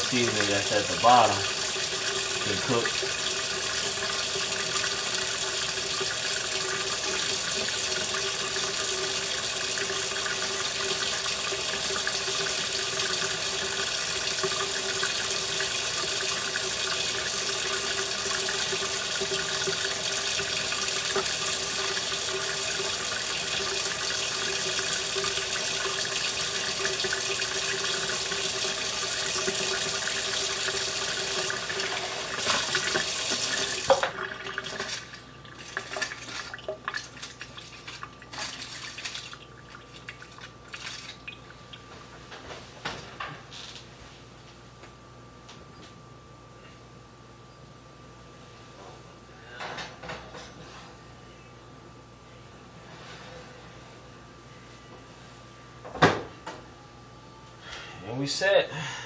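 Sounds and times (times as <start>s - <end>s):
faucet running into metal sink: 0.0s - 41.5s.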